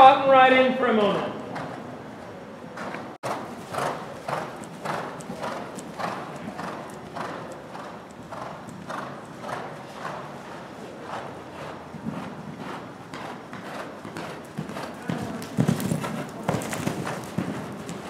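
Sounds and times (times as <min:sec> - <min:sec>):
horse hoofbeats trotting: 0:02.8 - 0:18.0.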